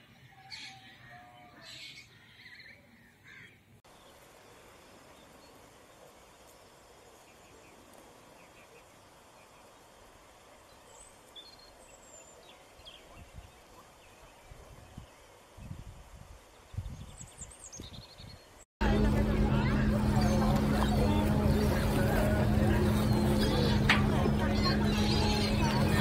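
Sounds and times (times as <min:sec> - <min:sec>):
steady hiss: 0:03.9 - 0:16.8
low bumps: 0:18.8 - 0:26.0.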